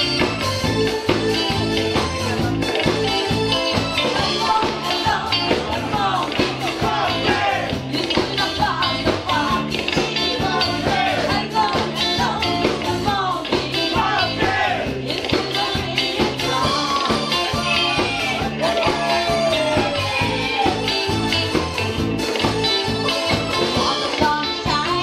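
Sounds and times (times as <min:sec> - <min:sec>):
live band playing disco-rock: 0:00.0 - 0:25.0
women singing: 0:04.1 - 0:18.7.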